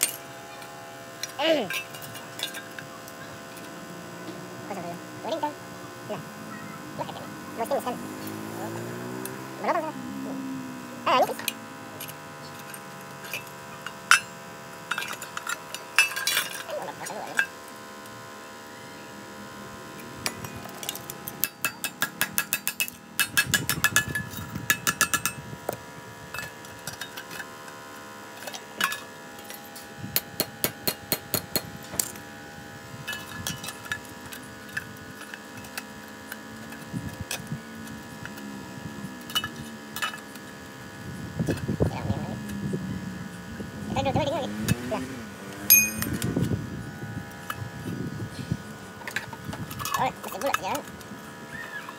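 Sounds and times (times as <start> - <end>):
steady hum: 0.0 - 51.9
hammer striking steel: 45.7 - 46.2.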